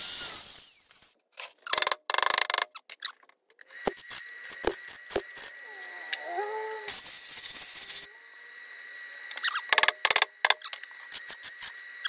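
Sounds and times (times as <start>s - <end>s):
faint high tone: 5.7s - 6.9s.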